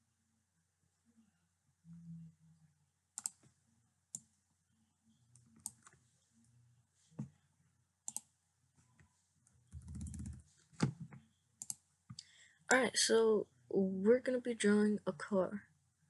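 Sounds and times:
mouse and keyboard clicks: 9.7s - 11.8s.

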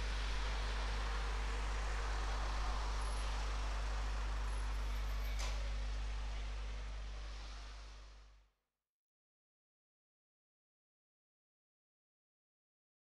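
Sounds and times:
low rumbling drone: 0.0s - 4.6s.

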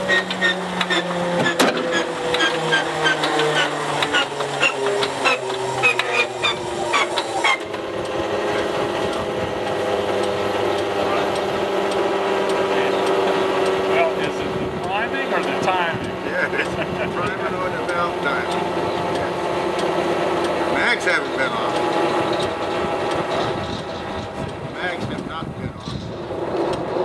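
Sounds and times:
whine stepping down in pitch: 0.0s - 19.4s
radial engine starter cranking: 0.0s - 25.2s
steady hum: 0.0s - 25.7s.

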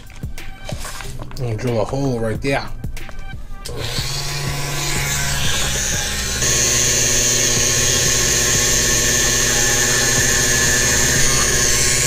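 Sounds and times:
rotary tool high-pitched whine: 3.7s - 12.0s.

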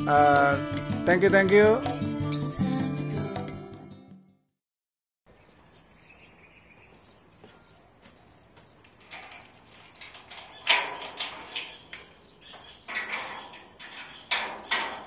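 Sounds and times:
metallic clatter: 9.0s - 15.0s.

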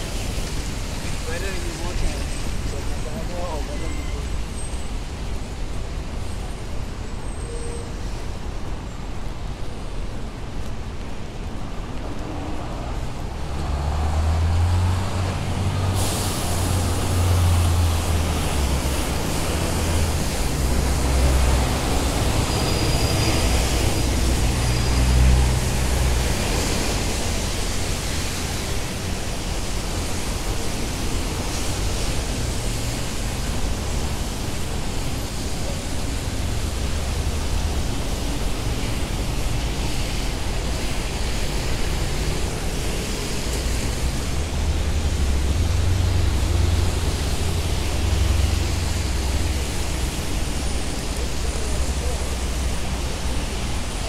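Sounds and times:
rain and tyres hissing on wet road: 0.0s - 54.0s
short high squeal: 3.7s - 4.9s, 22.3s - 25.3s.

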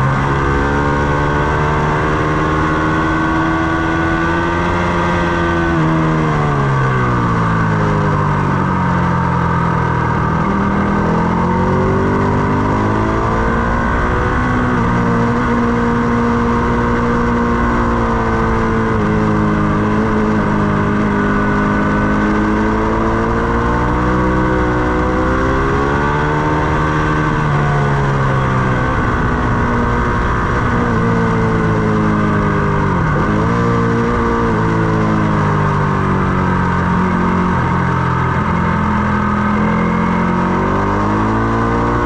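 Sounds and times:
motorcycle engine running hard: 0.0s - 42.0s
wind rush: 25.5s - 40.0s.

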